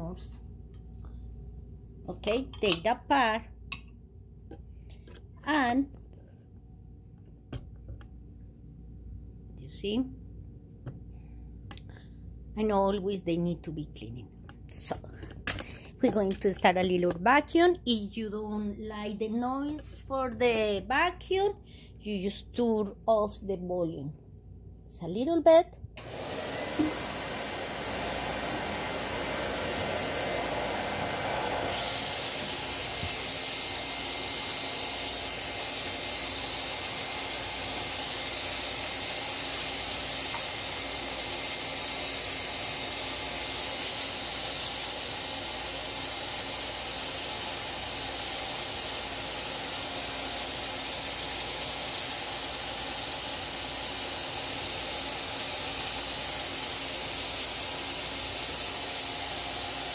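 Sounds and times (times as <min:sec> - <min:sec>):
vacuum cleaner running: 0:26.0 - 0:59.9.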